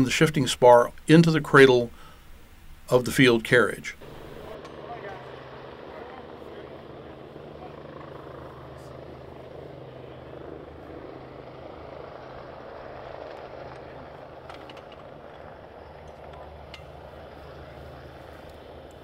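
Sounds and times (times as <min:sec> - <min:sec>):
low engine drone: 0:03.9 - 0:19.0.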